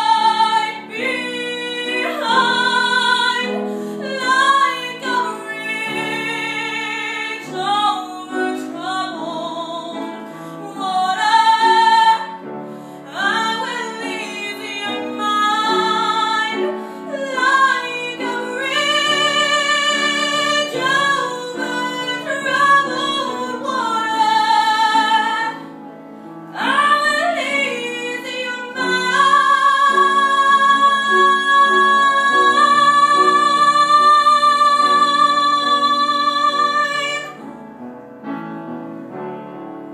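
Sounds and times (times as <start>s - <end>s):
woman singing operatically: 0.0s - 12.4s, 13.1s - 25.6s, 26.6s - 37.4s.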